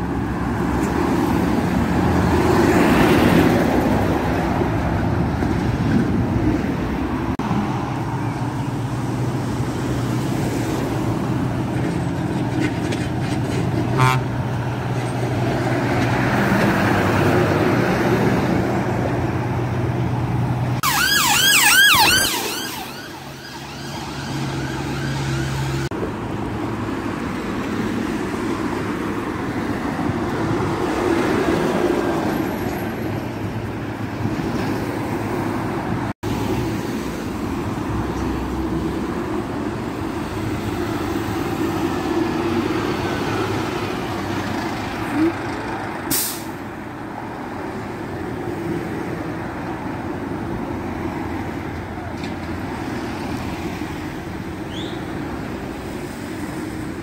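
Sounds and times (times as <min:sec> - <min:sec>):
road traffic: 0:00.0 - 0:57.0
air brake hiss: 0:46.1 - 0:46.6.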